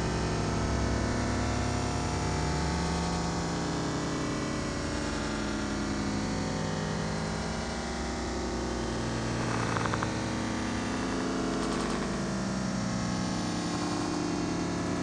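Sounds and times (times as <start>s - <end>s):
buzzing synthesizer drone: 0.0s - 15.0s
rapid ticks: 9.3s - 12.5s.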